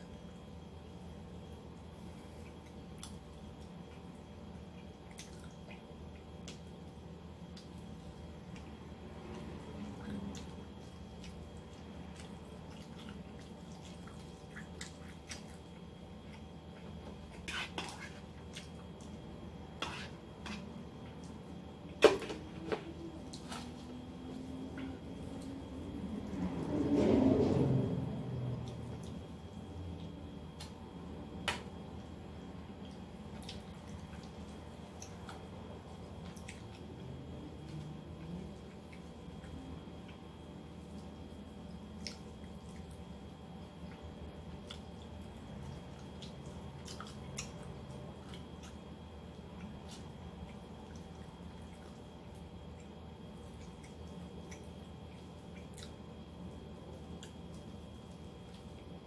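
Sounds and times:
steady low hum: 0.0s - 59.0s
person eating with wet smacks: 32.8s - 59.0s.

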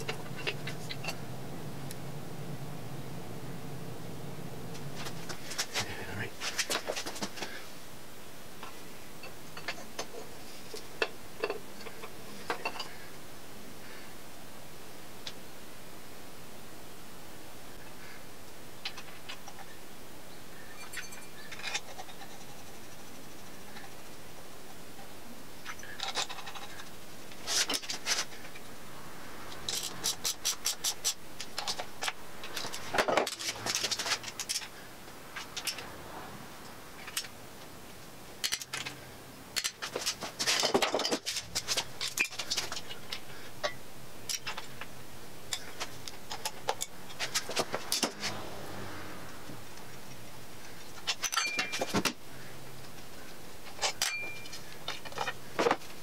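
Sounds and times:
metal tools clinking: 0.0s - 1.2s, 11.4s - 13.0s, 20.7s - 22.2s, 25.7s - 26.9s, 29.6s - 34.7s, 38.4s - 39.0s, 39.6s - 44.7s, 50.9s - 52.1s, 53.7s - 55.8s
short metallic rings: 51.1s - 52.0s, 53.8s - 54.7s.

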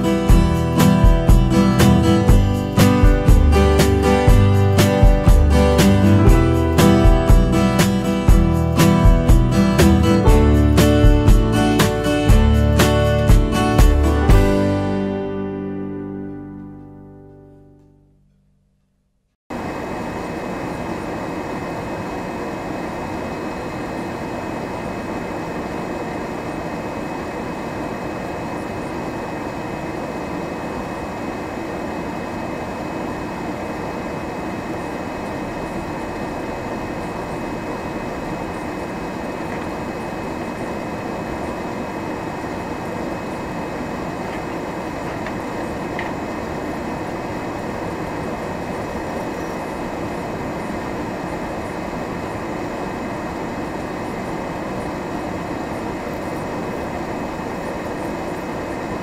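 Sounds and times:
vehicle engine and road drone: 19.0s - 59.0s.

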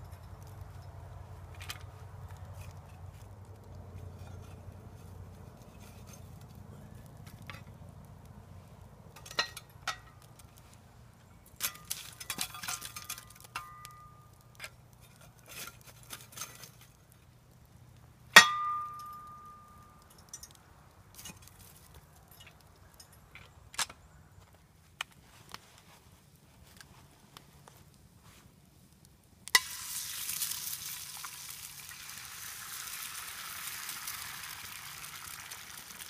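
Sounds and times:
metal cookware clinking: 18.4s - 19.6s.

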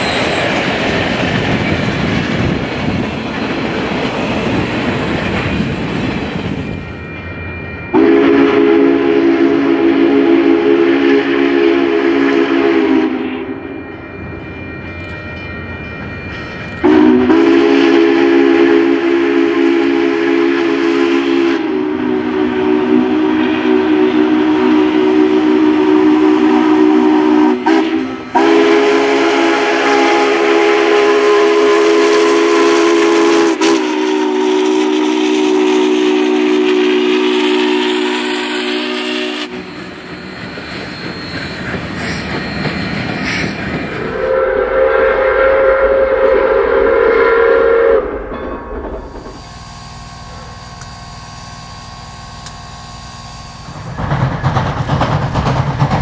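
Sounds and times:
passing train rolling: 0.0s - 56.0s
steam train whistle blasts: 7.9s - 13.8s, 16.8s - 40.2s, 44.1s - 48.3s, 49.2s - 53.8s.

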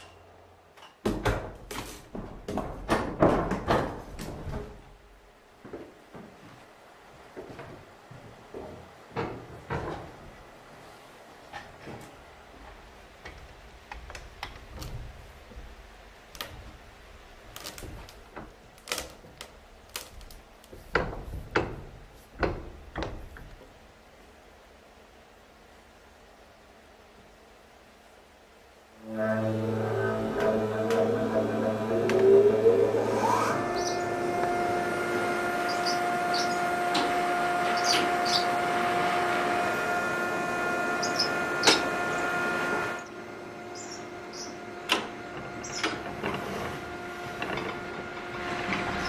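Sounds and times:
sawmill motor hum and whine: 29.0s - 49.0s.

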